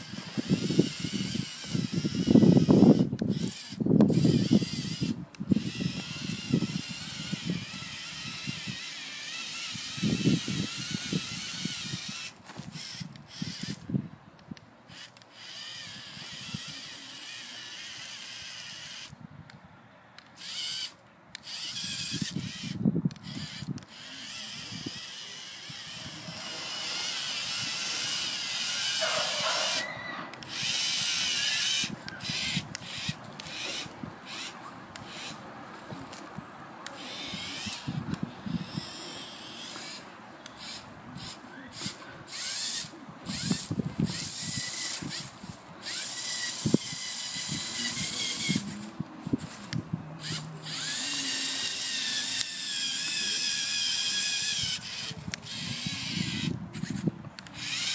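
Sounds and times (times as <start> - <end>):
electric motors whirring: 0.0 - 19.1, 20.2 - 57.9.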